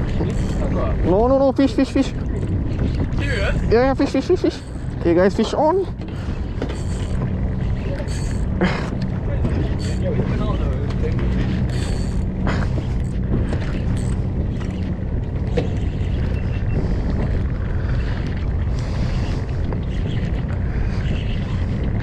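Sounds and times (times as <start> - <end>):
boat engine hum: 0.0 - 22.0
wind on microphone: 0.0 - 22.0.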